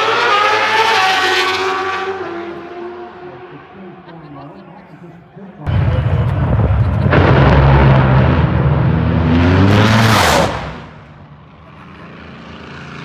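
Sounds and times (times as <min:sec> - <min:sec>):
racing car engine accelerating: 0:00.0 - 0:04.1, 0:05.7 - 0:11.2.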